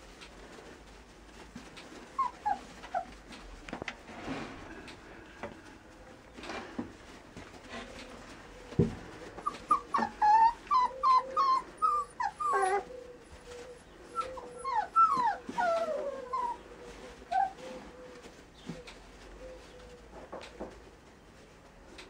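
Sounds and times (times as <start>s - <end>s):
puppies whimpering and yipping: 1.9s - 3.6s, 7.5s - 20.1s.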